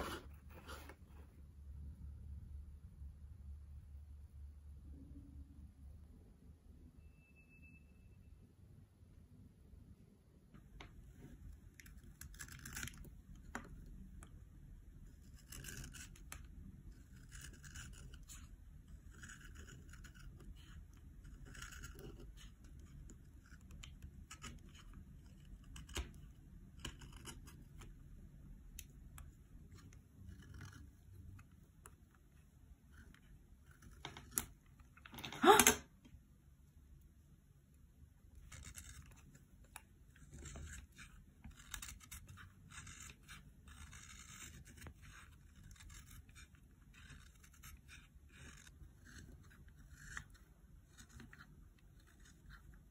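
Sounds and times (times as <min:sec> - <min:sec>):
knife shaving pencil wood: 0:11.2 - 0:35.8, 0:36.6 - 0:52.9.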